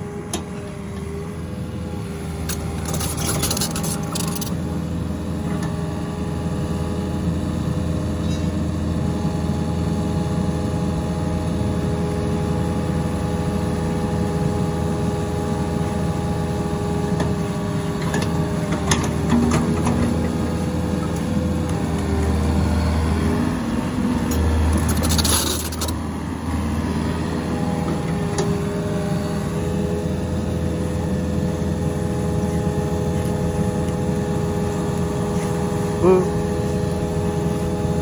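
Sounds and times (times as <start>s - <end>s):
excavator diesel engine running: 0.0s - 38.0s.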